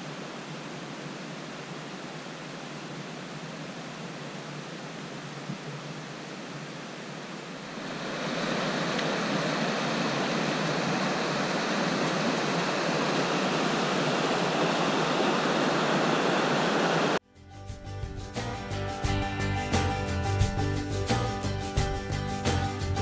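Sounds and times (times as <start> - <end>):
rushing water: 0.0 - 17.2.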